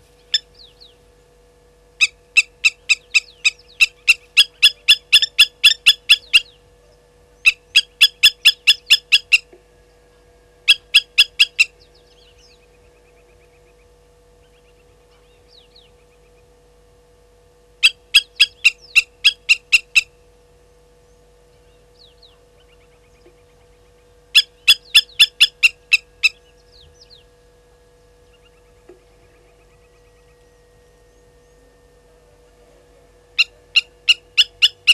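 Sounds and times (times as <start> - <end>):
lapwings metallic alarm calls: 2.0 - 6.6, 7.4 - 9.6, 10.7 - 11.8, 17.8 - 20.1, 24.3 - 26.9, 33.4 - 34.9.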